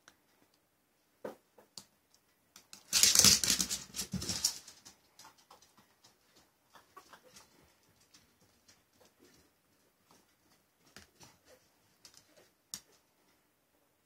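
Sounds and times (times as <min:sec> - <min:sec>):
dog claws clicking on vinyl floor: 0:02.5 - 0:09.5.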